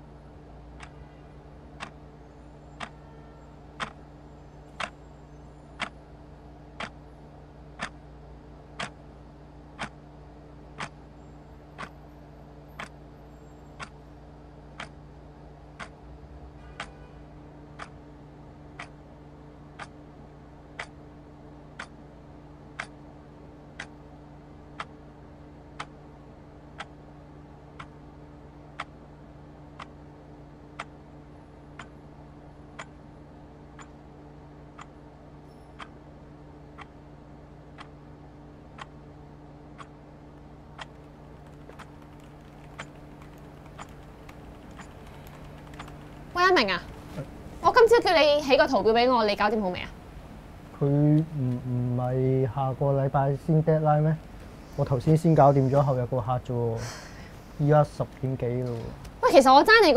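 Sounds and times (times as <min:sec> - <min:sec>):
low room hum: 0:00.0 - 0:59.9
clock ticking: 0:02.8 - 0:03.0, 0:03.8 - 0:04.0, 0:04.7 - 0:05.0, 0:06.8 - 0:07.0, 0:07.8 - 0:08.0, 0:08.8 - 0:09.0, 0:09.8 - 0:10.0, 0:10.8 - 0:11.0, 0:14.8 - 0:15.0, 0:15.8 - 0:16.0, 0:40.8 - 0:47.0.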